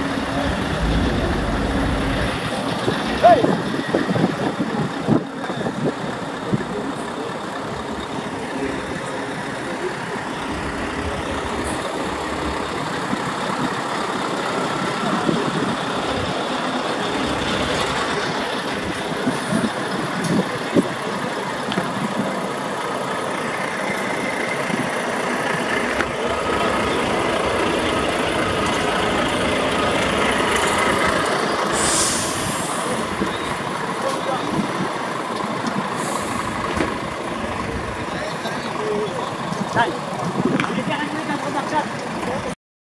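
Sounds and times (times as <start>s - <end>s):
truck diesel engines idling: 0.0s - 42.6s
air brake hiss: 31.7s - 33.0s, 36.0s - 36.6s.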